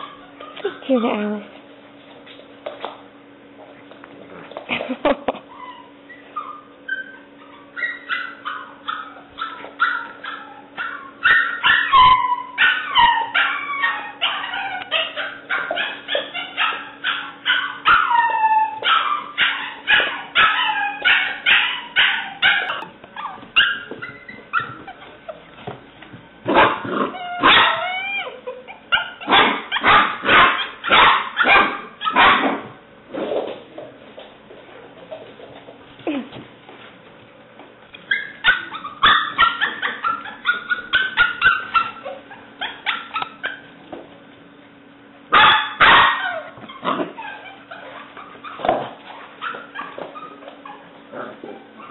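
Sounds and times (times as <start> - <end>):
puppy yapping: 0.0 - 1.2, 5.5 - 25.6, 26.5 - 32.8, 38.0 - 43.8, 45.3 - 51.9.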